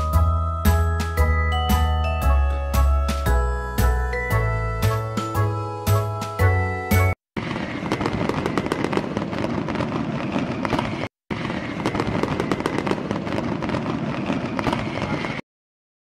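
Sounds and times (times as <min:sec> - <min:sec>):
fireworks crackling and popping: 0:07.4 - 0:15.4.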